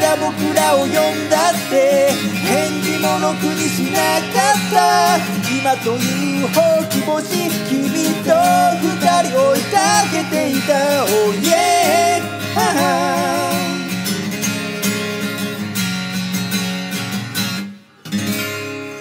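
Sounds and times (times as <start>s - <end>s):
person singing: 0.0s - 14.5s
acoustic guitar strumming: 0.0s - 19.0s.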